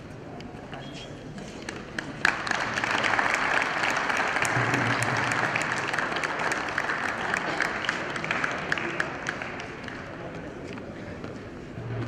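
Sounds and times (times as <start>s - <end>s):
crowd applause: 1.7s - 10.2s.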